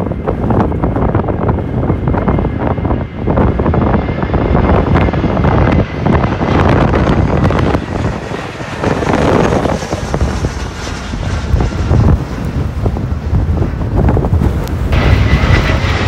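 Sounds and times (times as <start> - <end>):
jet airliner passing overhead: 0.0 - 16.0
wind buffeting microphone: 0.0 - 16.0.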